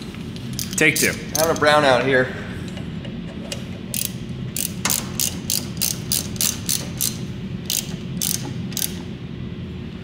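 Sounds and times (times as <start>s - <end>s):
ratchet wrench clicking: 0.5s - 1.7s, 3.9s - 9.1s.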